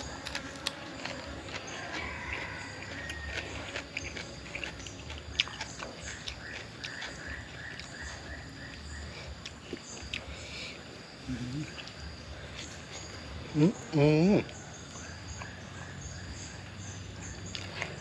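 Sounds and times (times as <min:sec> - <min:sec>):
chewing and mouth smacks: 0:00.0 - 0:10.4, 0:17.3 - 0:18.0.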